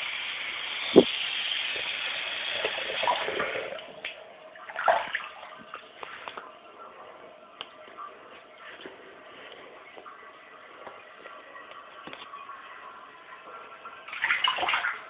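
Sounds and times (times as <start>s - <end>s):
tap water splashing into sink: 0.9s - 1.9s.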